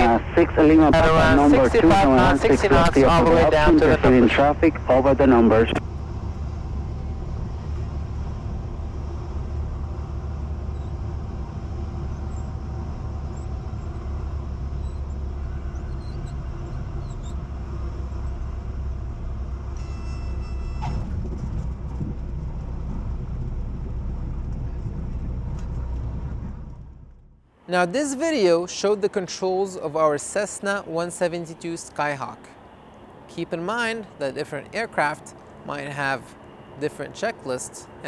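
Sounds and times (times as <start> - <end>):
airplane engine drone: 0.0 - 38.0
brief high tone: 19.8 - 20.9
wind rush: 20.8 - 27.0.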